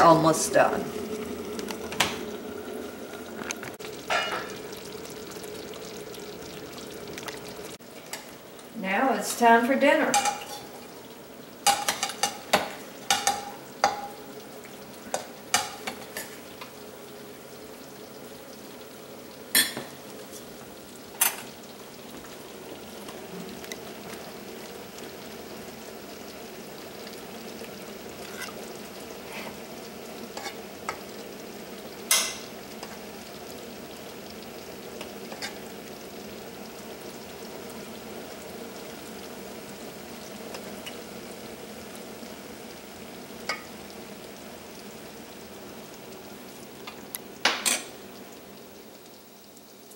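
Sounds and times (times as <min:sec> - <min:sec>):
gravy sizzling in pan: 0:00.0 - 0:49.9.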